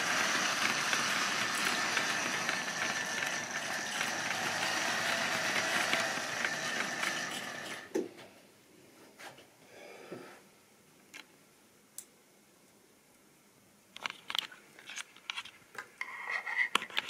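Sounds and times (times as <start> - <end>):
model train wagons rattling: 0.0 - 7.9.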